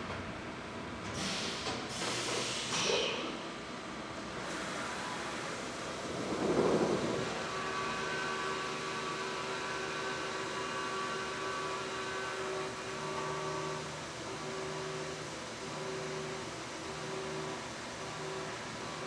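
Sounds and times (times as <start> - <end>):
milling machine spindle whine: 4.6 - 19.0.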